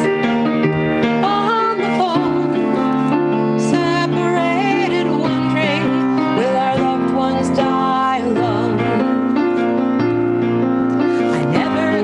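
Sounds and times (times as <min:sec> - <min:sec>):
piano chords: 0:00.0 - 0:12.0
woman singing with vibrato: 0:01.2 - 0:09.2, 0:11.3 - 0:12.0.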